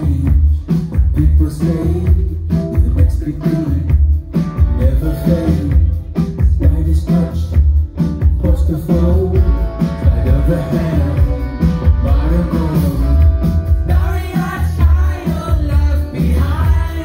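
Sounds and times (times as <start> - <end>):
electric guitar: 0.0 - 17.0
heavy bass and drum beat: 0.0 - 17.0
keyboards: 0.0 - 17.0
man singing: 0.0 - 17.0.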